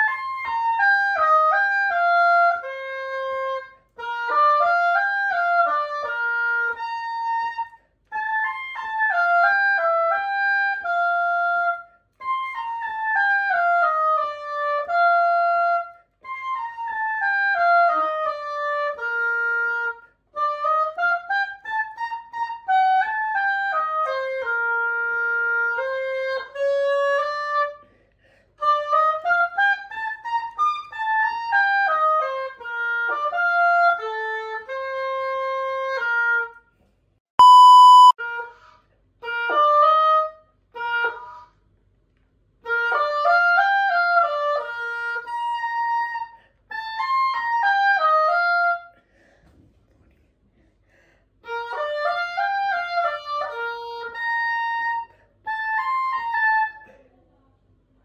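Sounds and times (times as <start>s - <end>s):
oboe playing melody: 0.0s - 27.9s, 28.6s - 36.6s, 37.4s - 41.5s, 42.6s - 48.9s, 51.4s - 56.9s
loud steady beep: 37.4s - 38.2s.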